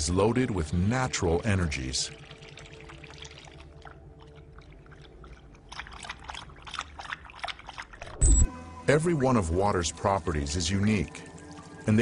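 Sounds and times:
dog lapping water from bowl: 1.3s - 8.2s.

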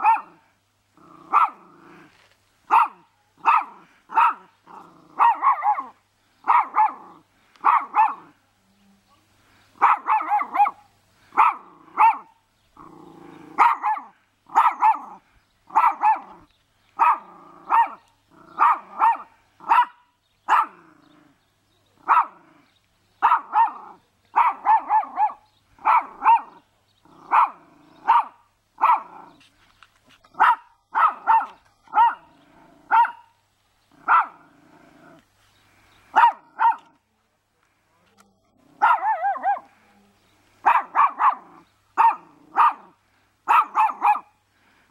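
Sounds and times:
small dog barking: 0.0s - 0.4s, 1.3s - 1.7s, 2.7s - 8.4s, 9.8s - 12.4s, 13.5s - 20.9s, 22.0s - 22.5s, 23.2s - 29.4s, 30.3s - 34.5s, 36.1s - 37.0s, 38.8s - 39.7s, 40.6s - 44.4s
dog growling: 1.0s - 2.2s, 3.6s - 5.9s, 12.8s - 14.1s, 17.1s - 19.2s, 20.5s - 22.8s, 25.9s - 28.3s, 32.2s - 33.1s, 33.9s - 35.3s.

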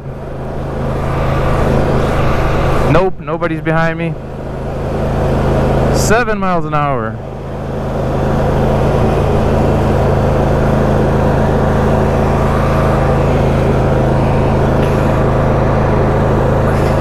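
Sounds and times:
lawn tractor engine running: 0.0s - 17.0s.

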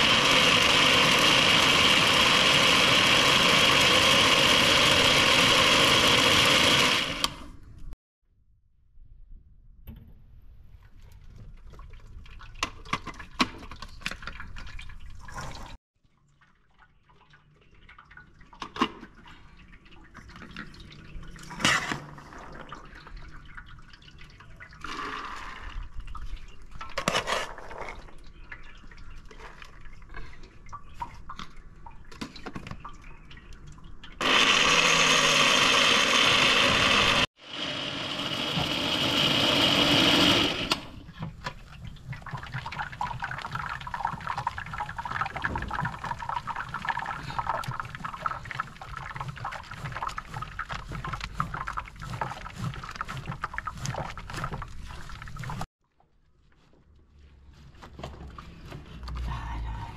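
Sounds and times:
electric blender running: 0.0s - 7.5s, 34.2s - 41.0s.

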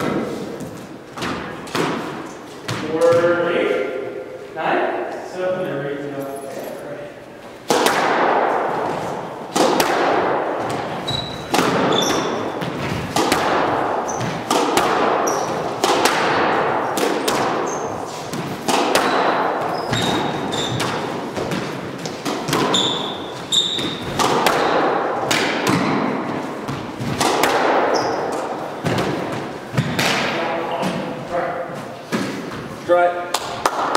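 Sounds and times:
squash ball hitting racquets and walls: 0.0s - 4.2s, 7.5s - 33.9s
sneakers squeaking on hardwood: 10.6s - 13.2s, 14.0s - 15.9s, 17.1s - 24.8s, 25.7s - 30.0s.

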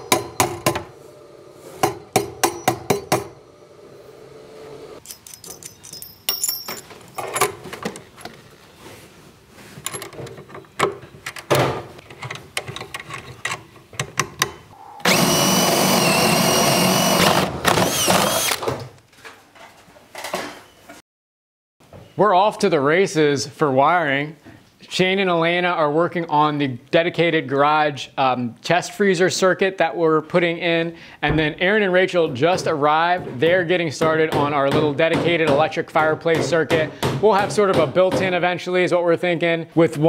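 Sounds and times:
hammer striking nails: 0.0s - 0.9s, 1.8s - 3.4s
cordless drill running: 15.0s - 18.8s.

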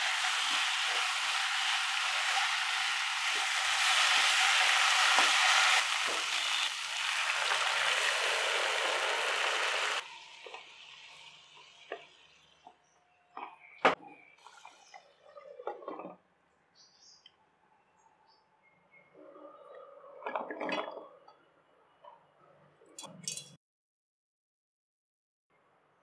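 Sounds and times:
food sizzling in hot pan: 0.0s - 11.8s
curry cooking quietly: 0.0s - 16.2s.

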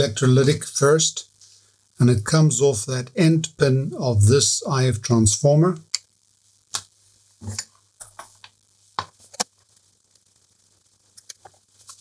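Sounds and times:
faint low hum: 0.0s - 8.1s.

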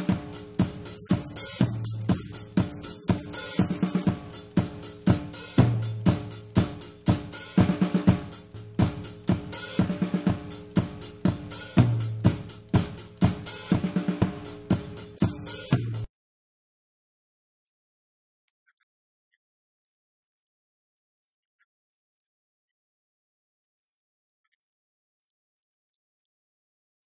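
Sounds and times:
drum kit beat: 0.0s - 16.1s.

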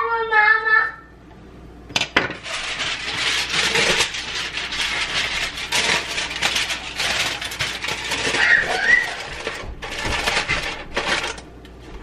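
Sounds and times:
aluminium foil crinkling: 2.4s - 11.5s.

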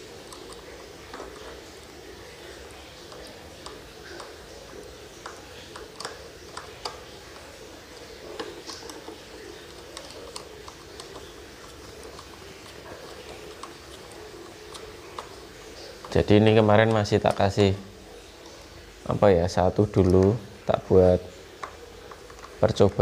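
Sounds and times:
room noise: 0.0s - 23.0s
motor and propeller handled: 2.7s - 17.5s.

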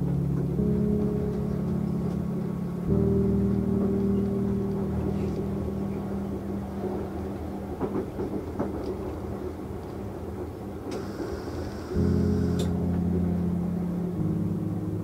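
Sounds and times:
train rumbling on rails: 5.5s - 12.6s
train wheels clicking over track: 7.8s - 9.4s.

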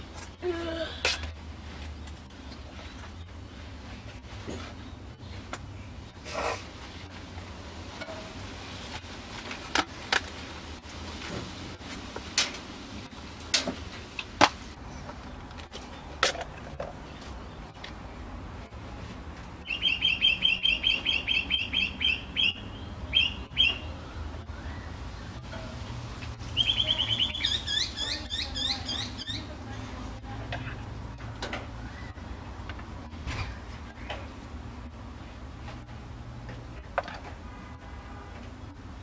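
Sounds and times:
bird chirping rapidly: 19.6s - 23.9s, 26.5s - 29.5s.

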